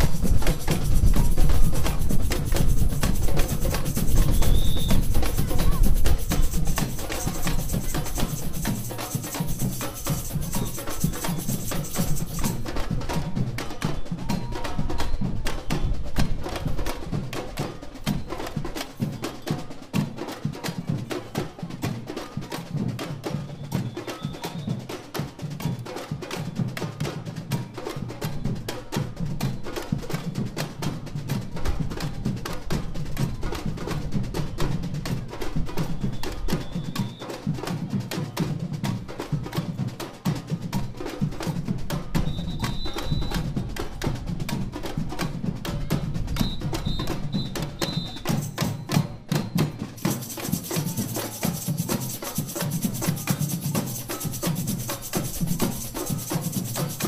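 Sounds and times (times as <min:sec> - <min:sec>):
samba band drumming: 0:00.0 - 0:57.0.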